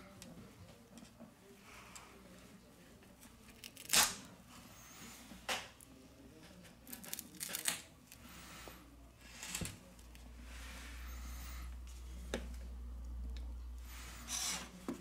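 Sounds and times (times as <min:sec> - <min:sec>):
adhesive tearing and crackling: 0:03.5 - 0:04.2, 0:06.8 - 0:07.9.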